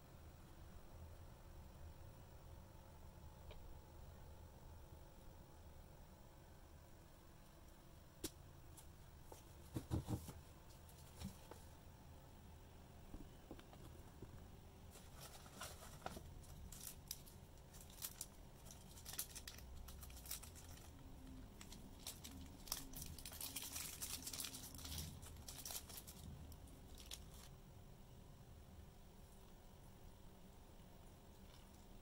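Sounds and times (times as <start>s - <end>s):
plastic bag crinkling: 14.9s - 27.5s.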